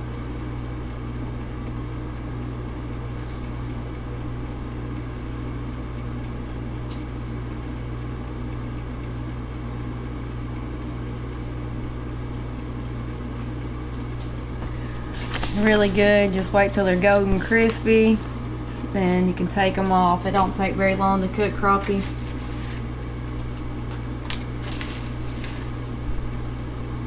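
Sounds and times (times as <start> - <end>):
low even hum: 0.0 - 27.0
fish frying in grease: 22.1 - 27.0.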